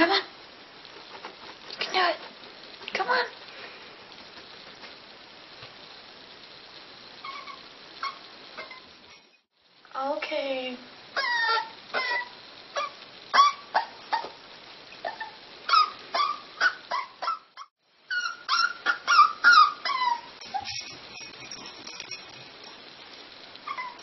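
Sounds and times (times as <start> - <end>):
dog yipping and whimpering: 7.2 - 8.9, 11.2 - 14.4, 15.0 - 21.2, 23.6 - 24.0.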